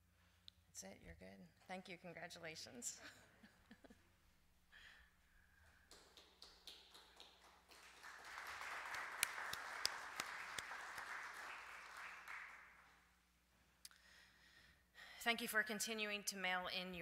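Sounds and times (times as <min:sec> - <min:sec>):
crowd applauding: 0:05.9 - 0:13.0.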